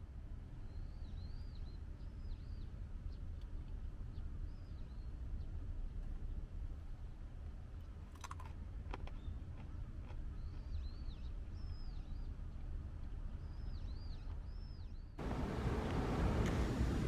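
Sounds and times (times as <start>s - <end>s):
low steady rumble: 11.6s - 17.0s.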